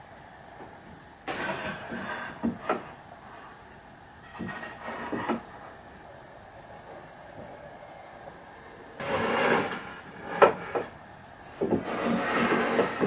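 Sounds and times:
wood scraping: 1.3 - 3.6, 4.2 - 6.0, 9.0 - 11.0, 11.6 - 13.0.

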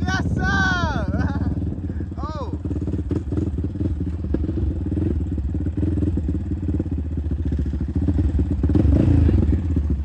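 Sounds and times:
quad bike engine running: 0.0 - 10.0.

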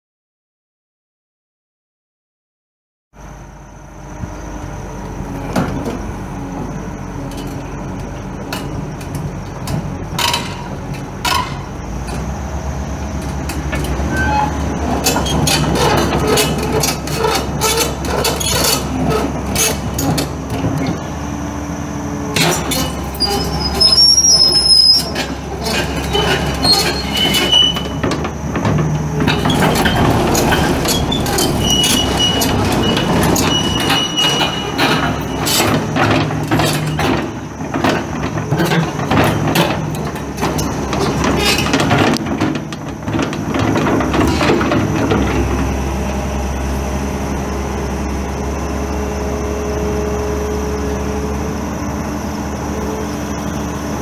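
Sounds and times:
excavator diesel engine under load: 3.2 - 54.0
metal clanks and knocks: 7.3 - 12.3, 13.2 - 21.0, 22.4 - 23.8, 25.0 - 45.7
high metallic squeals: 14.0 - 21.0, 22.4 - 28.0, 29.2 - 37.5.

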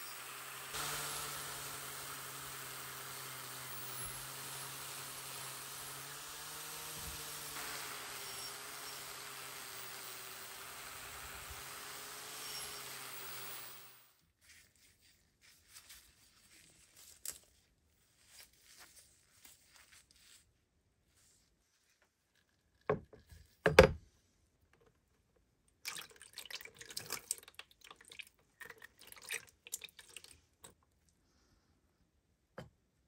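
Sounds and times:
axe head handled in gloves: 14.3 - 20.5.

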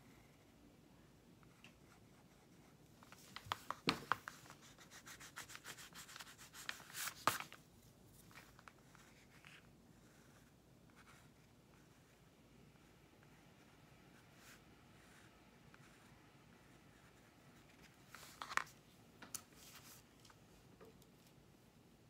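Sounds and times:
pencil scratching on paper: 4.3 - 7.1.

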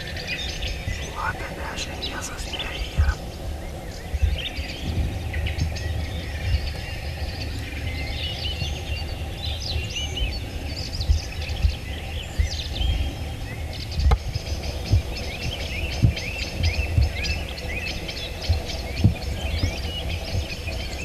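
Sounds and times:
songbirds singing: 0.0 - 21.0.

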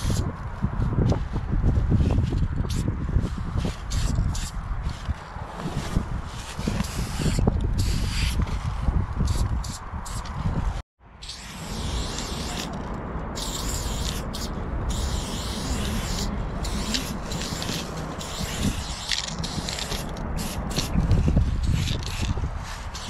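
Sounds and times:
spray paint can hissing: 3.9 - 4.5, 6.7 - 8.4, 9.2 - 10.3, 11.2 - 12.8, 13.4 - 23.0
low rumble: 10.3 - 22.7.

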